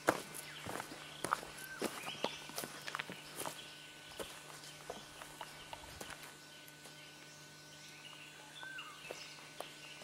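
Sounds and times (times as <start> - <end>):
footsteps on dry leaves: 0.0 - 7.1
steady low hum: 0.0 - 10.0
bird chirp: 0.1 - 10.0.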